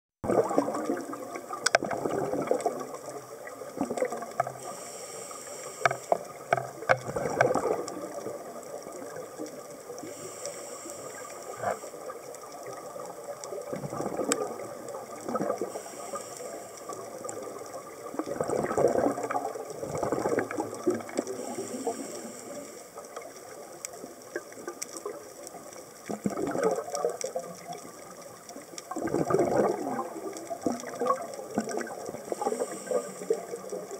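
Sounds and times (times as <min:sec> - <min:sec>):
exhaled bubbles rushing: 0:00.2 - 0:04.7, 0:06.2 - 0:10.1, 0:11.5 - 0:15.8, 0:16.9 - 0:23.3, 0:26.0 - 0:33.9
small clicks: 0:00.8 - 0:33.9
regulator inhale hiss: 0:04.4 - 0:06.5, 0:09.9 - 0:12.3, 0:15.5 - 0:18.0, 0:21.2 - 0:23.2, 0:32.2 - 0:33.9.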